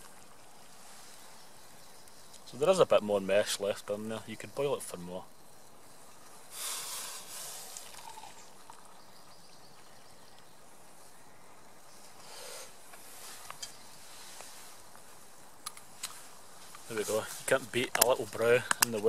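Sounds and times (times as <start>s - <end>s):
faint steady hiss: 0.0s - 19.0s
rustle: 0.0s - 19.0s
hot water pouring into mug: 7.7s - 9.0s.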